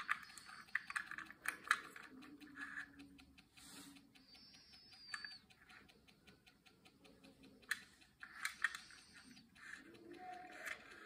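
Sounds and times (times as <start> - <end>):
toy car ticking and clicking: 0.0 - 11.0.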